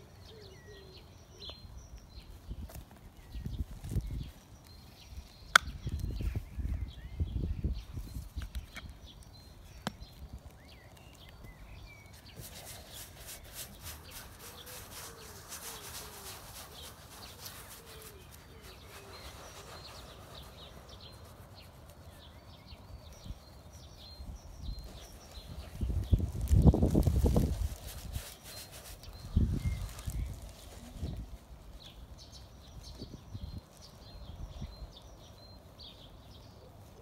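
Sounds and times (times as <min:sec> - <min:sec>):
small birds chirping: 0:00.0 - 0:37.0
hand scrubbing paint on canvas: 0:12.0 - 0:32.0.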